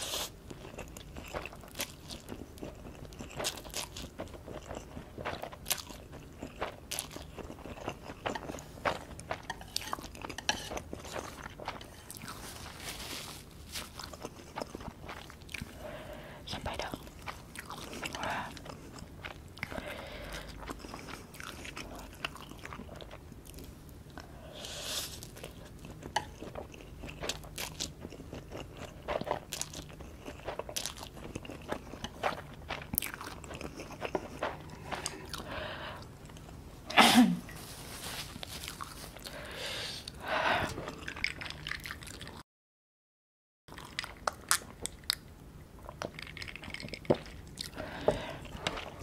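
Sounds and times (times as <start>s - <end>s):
person slurping and chewing noodles: 0.0s - 23.2s, 24.5s - 36.5s, 45.8s - 49.0s.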